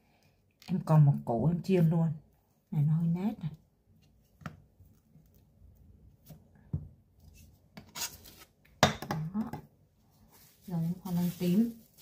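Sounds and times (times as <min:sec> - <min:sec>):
knife scraping cutting board: 0:07.8 - 0:08.5.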